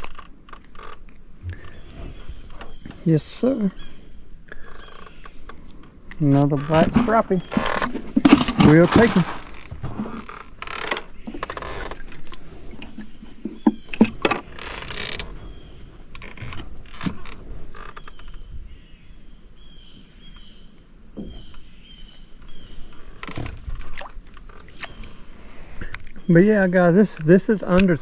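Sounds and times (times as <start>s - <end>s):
faint insect chirping: 0.0s - 28.0s
fishing tackle knocks and rustles: 4.5s - 18.8s, 21.2s - 25.2s.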